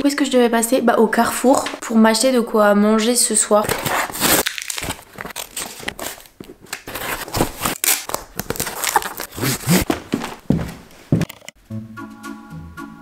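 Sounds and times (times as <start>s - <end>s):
cardboard box crinkling and scraping: 3.6s - 10.4s.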